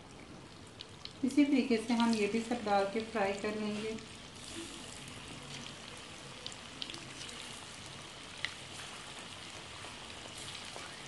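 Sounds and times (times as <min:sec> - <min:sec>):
hot oil sizzling deep-frying: 0:00.0 - 0:11.0
oil pops and crackles: 0:00.2 - 0:01.2, 0:08.3 - 0:11.0.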